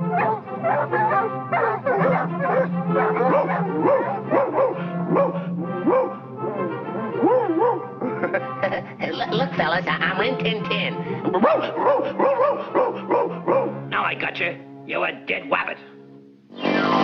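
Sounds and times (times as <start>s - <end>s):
cartoon hounds barking and yelping: 0.0s - 8.0s, 11.3s - 13.9s
orchestral music: 0.0s - 15.8s.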